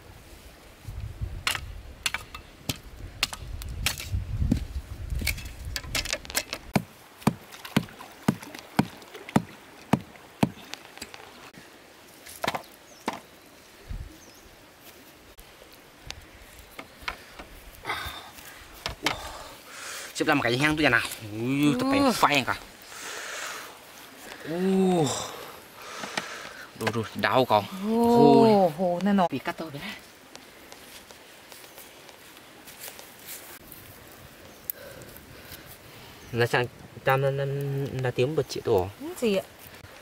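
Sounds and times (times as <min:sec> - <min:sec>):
machete chopping bamboo: 0:01.5 - 0:04.2, 0:05.2 - 0:10.6.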